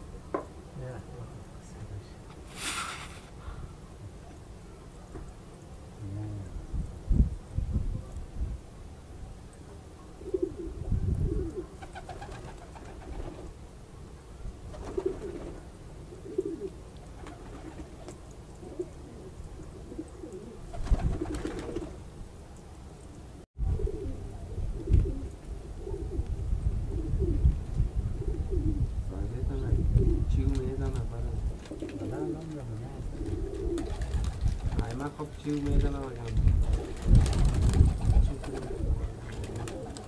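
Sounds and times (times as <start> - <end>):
pigeons cooing: 10.2 - 13.5, 14.7 - 22.0, 23.6 - 26.3, 28.2 - 28.9, 31.6 - 34.8, 37.8 - 40.0.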